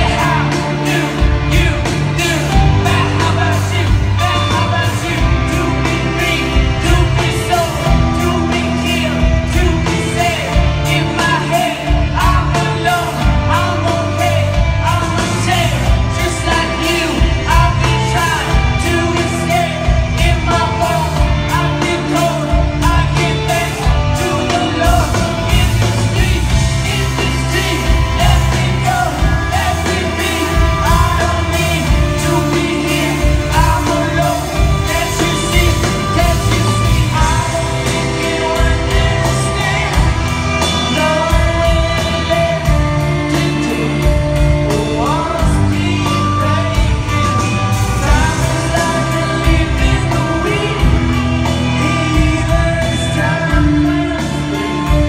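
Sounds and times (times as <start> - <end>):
live rock band playing: 0.0 - 55.0
person singing: 0.0 - 55.0.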